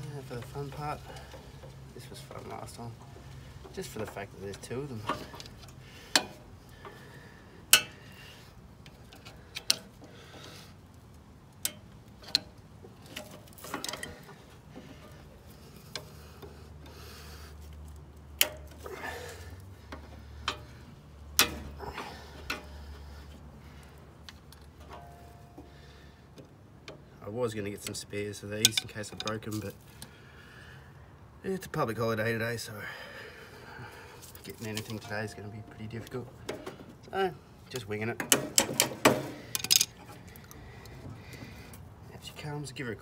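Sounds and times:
metal tools prying and scraping: 0.0s - 7.1s, 7.7s - 8.2s, 11.6s - 17.0s, 18.4s - 23.4s, 24.4s - 26.0s, 28.6s - 29.8s, 34.2s - 37.1s, 37.7s - 41.7s.

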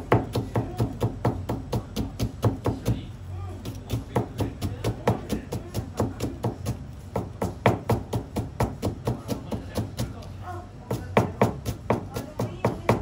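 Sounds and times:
knife chopping on cutting board: 0.0s - 3.0s, 3.6s - 10.3s, 10.9s - 13.0s.

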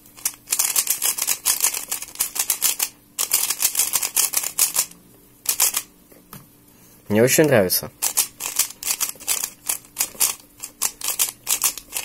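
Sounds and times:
speed cube clacking: 0.2s - 4.9s, 5.5s - 5.9s, 8.0s - 12.0s.

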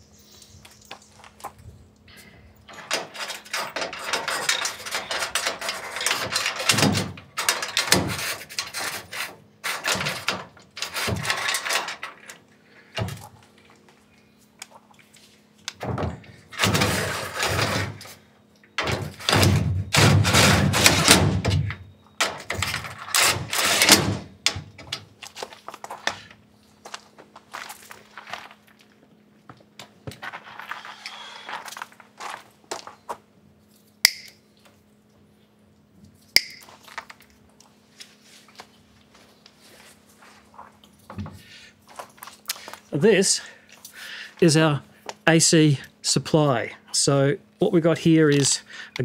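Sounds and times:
metal bracket scraping and rattling: 2.7s - 12.4s, 16.5s - 18.2s, 18.8s - 21.6s, 22.3s - 25.0s.

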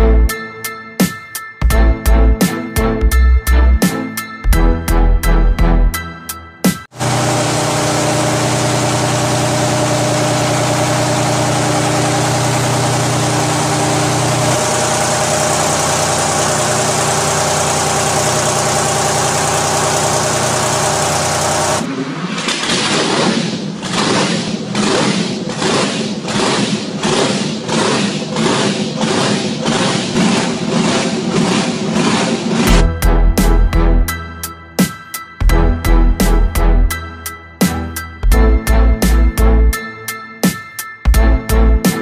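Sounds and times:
truck engine running: 6.9s - 33.9s.

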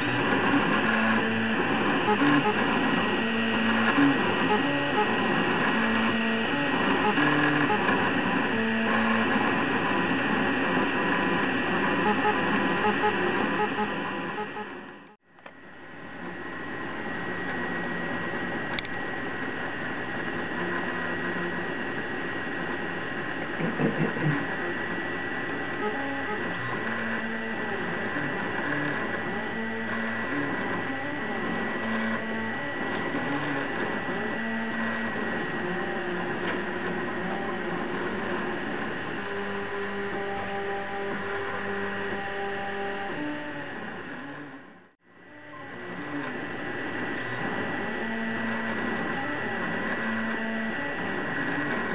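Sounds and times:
stepper motor tones: 0.0s - 15.2s, 16.2s - 44.6s
cooling fans humming: 0.0s - 44.3s
steady high whine: 0.0s - 51.9s
stepper motors whining: 23.4s - 24.6s.

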